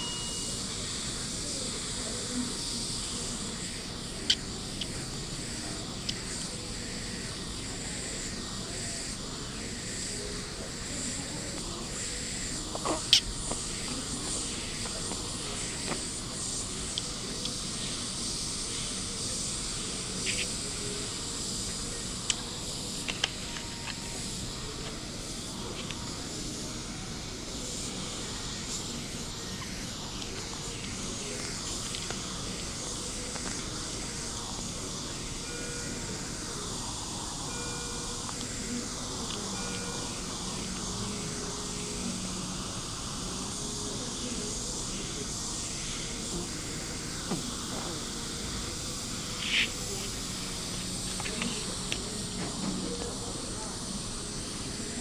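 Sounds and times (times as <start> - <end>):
machine hiss: 0.0 - 55.0
hiss of air from equipment: 30.1 - 55.0.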